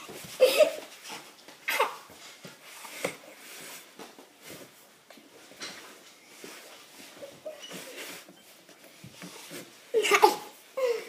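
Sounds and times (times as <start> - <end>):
children straining and breathing hard: 9.9 - 11.0.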